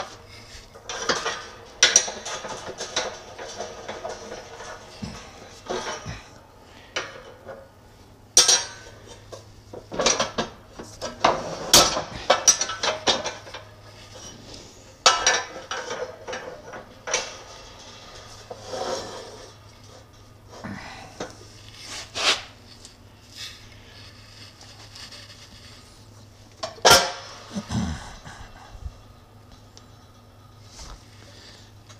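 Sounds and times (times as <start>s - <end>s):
heavy steel parts clanking: 0.0s - 7.6s, 8.4s - 14.4s, 26.6s - 28.8s.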